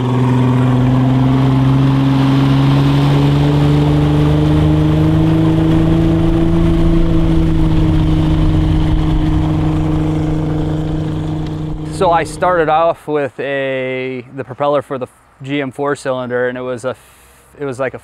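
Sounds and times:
water rushing from hull: 0.0 - 12.8
boat engine running: 0.0 - 12.9.

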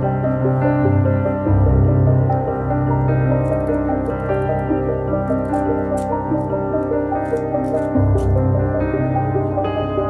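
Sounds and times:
soft piano music: 0.0 - 10.0.

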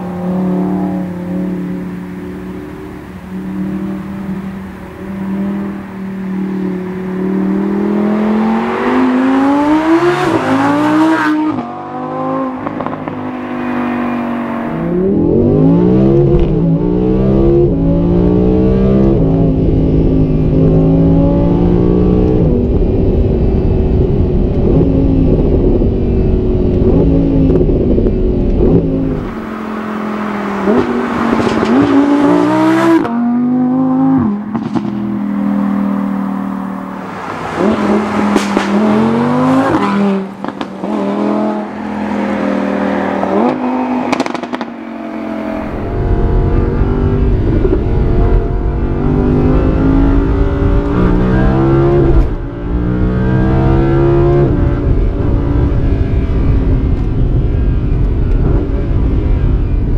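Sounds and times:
car engine accelerating with upshifts: 0.0 - 59.9
road rumble: 0.0 - 59.9.

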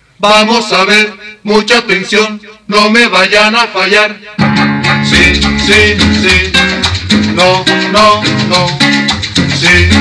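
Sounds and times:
upbeat dance music: 4.5 - 10.0
shaken maracas: 4.6 - 10.0.

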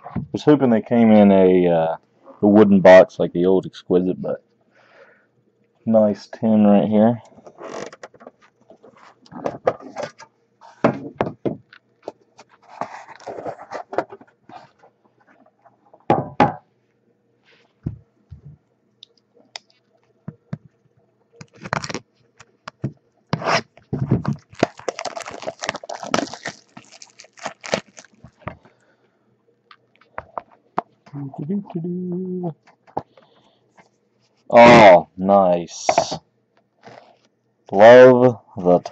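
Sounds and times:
hands handling a box: 8.3 - 14.9
plastic wrap rustling: 12.4 - 14.8, 21.4 - 22.8, 23.4 - 28.7.

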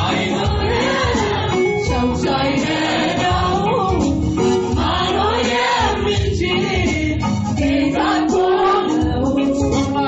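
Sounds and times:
choir singing gospel song: 0.0 - 9.4.

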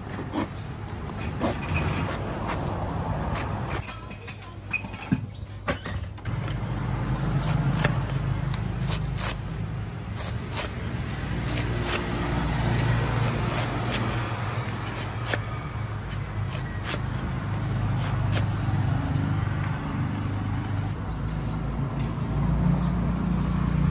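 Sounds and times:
cleaver chopping coconut husk: 0.0 - 4.0, 6.2 - 19.2.

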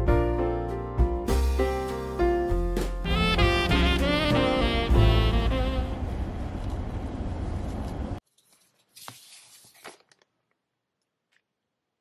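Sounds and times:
car road noise: 5.6 - 8.2.

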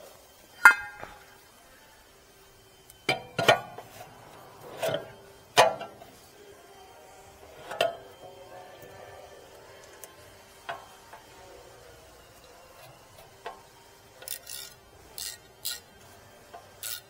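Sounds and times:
brake rotor clanking metallic knocks: 0.6 - 1.3.

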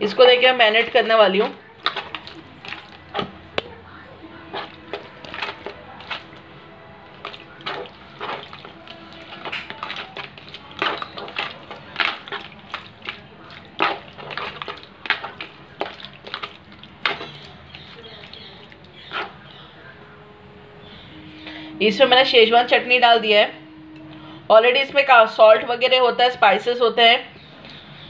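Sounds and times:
wet squelching of prawns: 0.0 - 20.0, 27.4 - 28.0.

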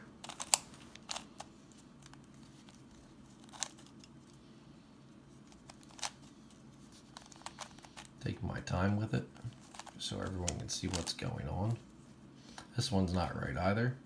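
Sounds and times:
faint low hum: 0.0 - 14.0
puzzle cube clicking: 0.2 - 1.5.

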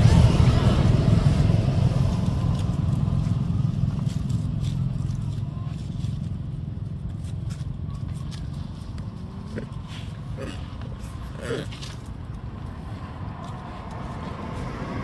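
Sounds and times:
vehicle engine rumble: 0.0 - 15.0
dry leaves rustling: 0.2 - 15.0.

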